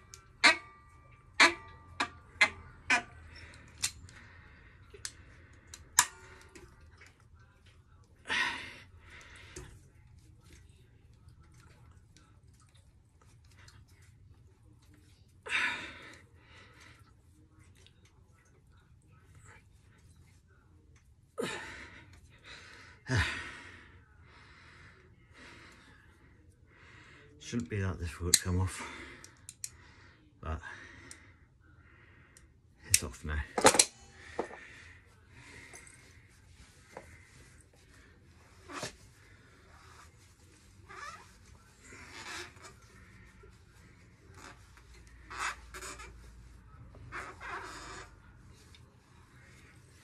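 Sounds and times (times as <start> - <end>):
metallic clicks of pliers: 29.3 - 29.7.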